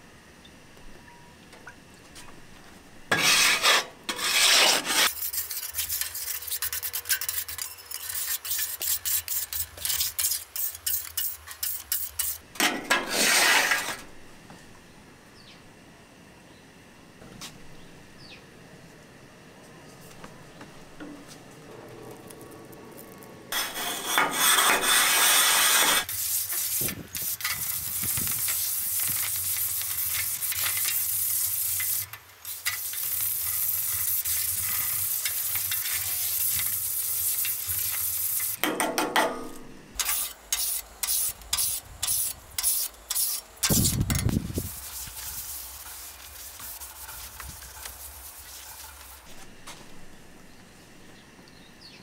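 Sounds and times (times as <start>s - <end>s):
brick scrubbing a griddle: 3.1s - 14.1s, 22.1s - 38.6s, 40.0s - 49.9s
liquid sizzling: 26.0s - 38.6s, 40.0s - 49.3s.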